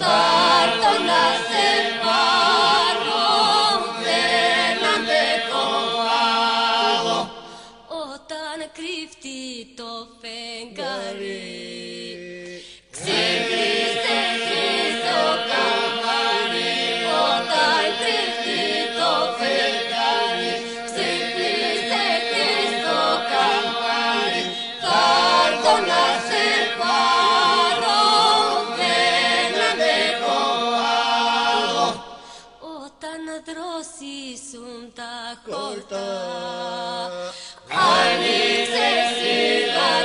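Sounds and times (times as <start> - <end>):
polyphonic folk singing group: 0.0 - 7.9, 10.7 - 32.6, 35.3 - 40.0.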